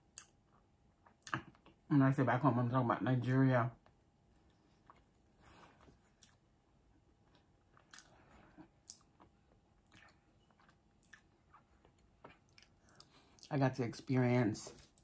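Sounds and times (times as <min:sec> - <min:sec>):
faint chewing crunches: 0:03.8 - 0:15.0.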